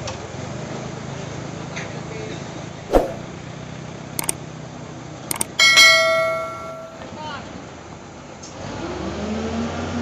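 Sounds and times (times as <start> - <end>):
double mouse click: 2.9 - 3.2, 5.3 - 5.6
sharp pop sound effect: 2.9 - 3.3.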